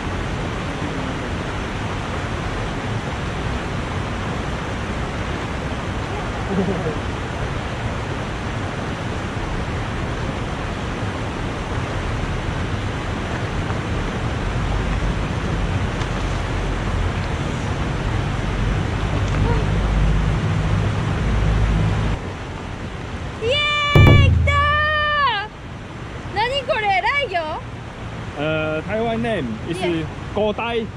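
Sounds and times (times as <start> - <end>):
river rushing over rocks: 0.0 - 21.2.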